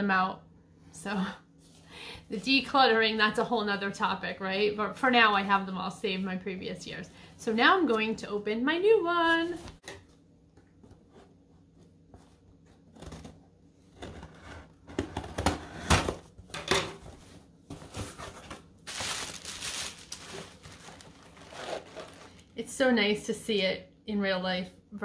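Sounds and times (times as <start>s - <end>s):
packaging rustling and crinkling: 17.0s - 22.6s.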